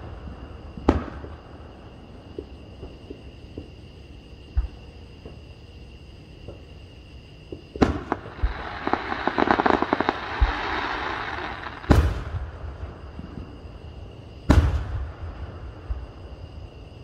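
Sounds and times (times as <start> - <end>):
firework booms echoing: 0.0 - 1.4, 7.8 - 13.5, 14.5 - 16.1
firework crackling: 7.9 - 12.5.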